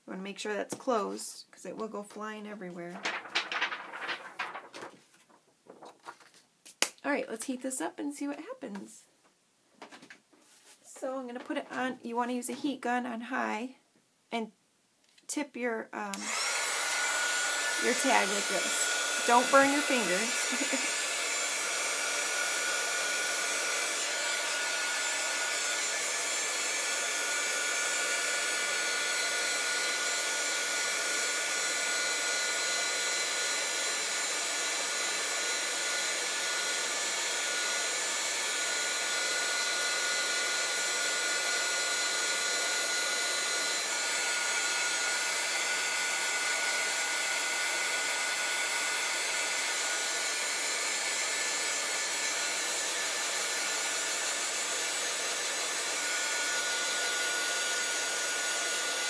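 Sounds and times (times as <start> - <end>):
heat gun blowing air: 16.2 - 59.0.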